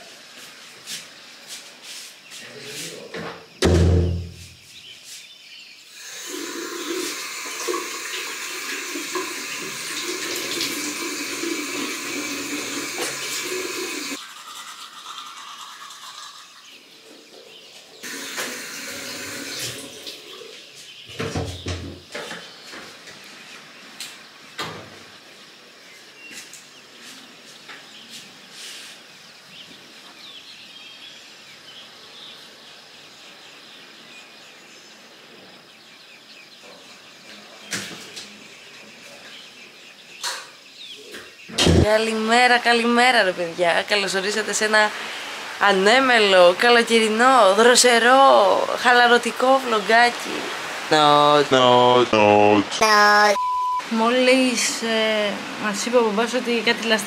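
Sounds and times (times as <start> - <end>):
knocks: 3.6 - 4.5
tap water running: 5.9 - 16.6, 18.0 - 20.3.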